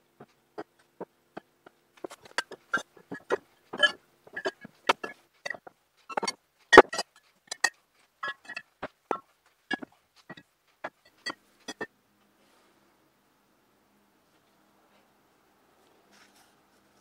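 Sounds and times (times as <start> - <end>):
glass bottles clinking: 2.2 - 5.6.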